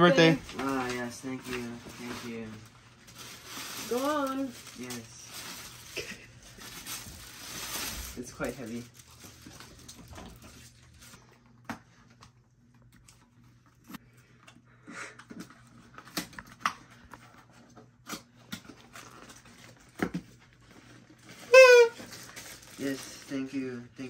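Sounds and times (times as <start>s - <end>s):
paper gift bag handled: 0.2s - 11.3s, 20.6s - 23.6s
tissue paper rustling: 0.2s - 11.3s, 20.8s - 23.5s.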